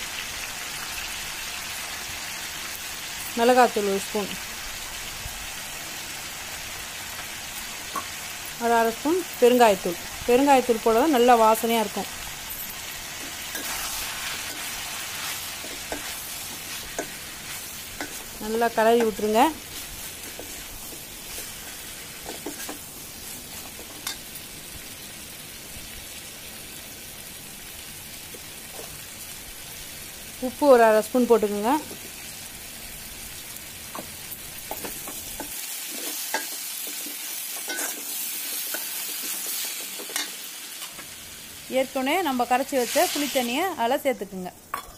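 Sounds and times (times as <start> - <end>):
vegetables sizzling in oil: 0.0 - 44.9
ladle stirring in pan: 12.1 - 24.3, 34.0 - 41.0.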